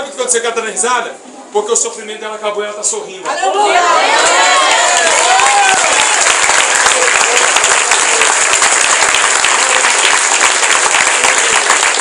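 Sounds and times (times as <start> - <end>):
crowd clapping: 4.2 - 12.0.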